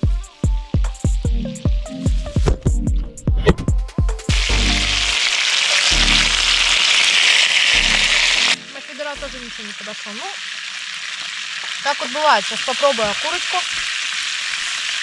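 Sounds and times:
chicken sizzling in a pan: 0:00.0 - 0:02.3, 0:04.3 - 0:15.0
background music: 0:00.0 - 0:09.8.

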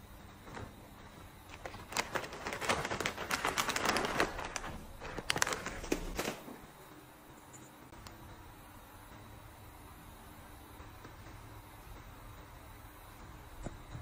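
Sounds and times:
foil pouch crinkling: 0:01.5 - 0:06.5.

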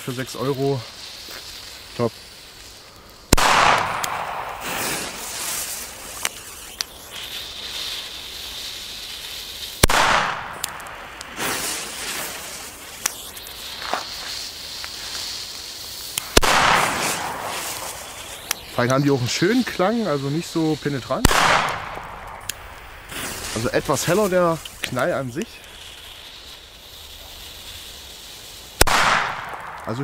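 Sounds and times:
firecracker bangs: 0:03.3 - 0:06.3, 0:09.8 - 0:15.2, 0:16.2 - 0:19.8, 0:21.1 - 0:25.0, 0:28.8 - 0:30.0
small firecracker pops: 0:03.3 - 0:07.4, 0:09.7 - 0:15.2, 0:16.1 - 0:19.0, 0:21.2 - 0:26.1, 0:28.8 - 0:30.0.

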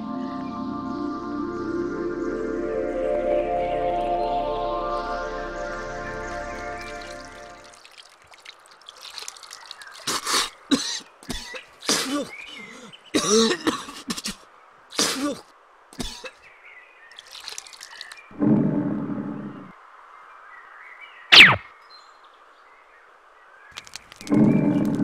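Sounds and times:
person clearing throat: 0:10.1 - 0:14.4, 0:15.0 - 0:16.4
person coughing: 0:10.1 - 0:14.4, 0:15.0 - 0:16.4.

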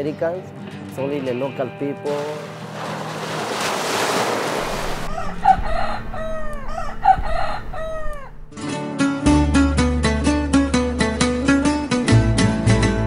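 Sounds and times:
wave washing on pebbles: 0:02.2 - 0:05.1
rooster crowing: 0:04.9 - 0:08.5
plucked-string music: 0:08.5 - 0:13.0.

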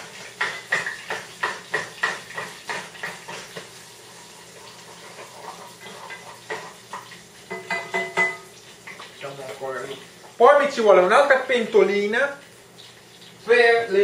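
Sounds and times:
spoon knocking against a pot: 0:00.4 - 0:03.7, 0:06.2 - 0:08.5.

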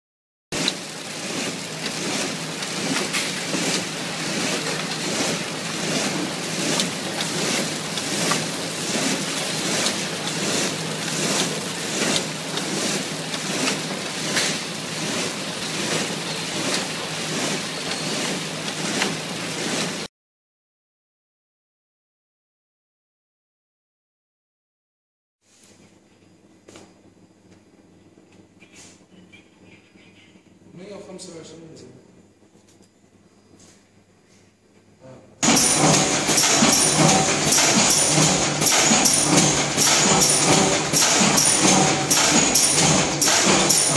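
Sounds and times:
machinery din: 0:35.4 - 0:43.9.

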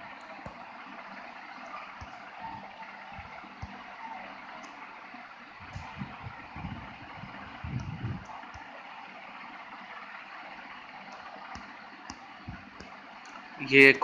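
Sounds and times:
soft low thumps: 0:05.6 - 0:08.6, 0:11.6 - 0:13.0.

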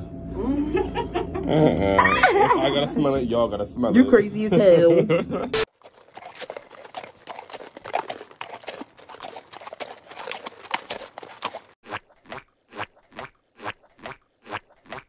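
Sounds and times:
footsteps on concrete sidewalk: 0:05.7 - 0:15.0.

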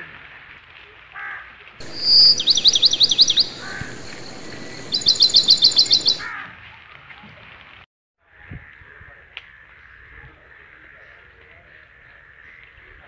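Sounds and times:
crow cawing: 0:01.2 - 0:06.5
rain hissing: 0:01.8 - 0:06.3
songbird singing trills: 0:01.8 - 0:06.3.

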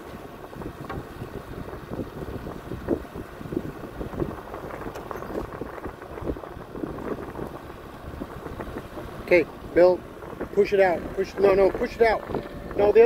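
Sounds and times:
wind rumbling on microphone: 0:00.0 - 0:13.0
small knocks and thumps: 0:00.8 - 0:01.1.

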